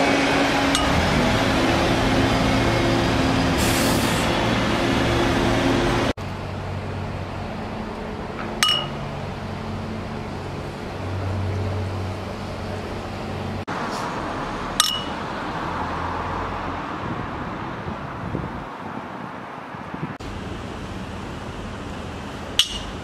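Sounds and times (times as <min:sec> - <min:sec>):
steady background noise: 0:04.3 - 0:23.0
drinking glasses clinking: 0:08.6 - 0:09.0, 0:14.8 - 0:15.1.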